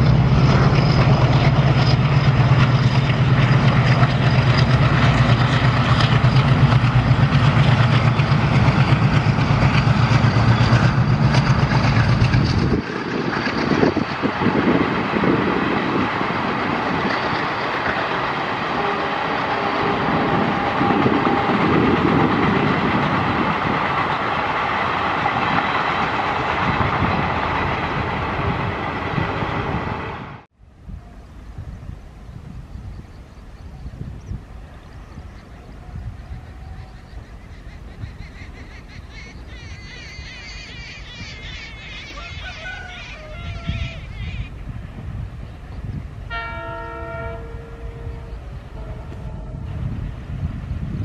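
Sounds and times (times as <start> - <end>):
train wheels on rails clickety-clack: 0.0 - 30.4, 48.7 - 51.0
diesel locomotive engine throb: 0.0 - 30.5, 33.9 - 51.0.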